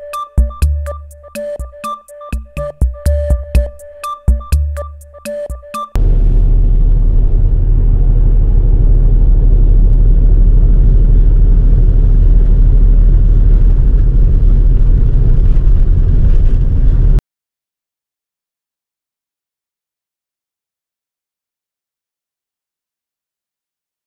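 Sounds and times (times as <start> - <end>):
electronic music with drum hits: 0.0 - 6.0
car road and engine rumble: 6.0 - 17.2.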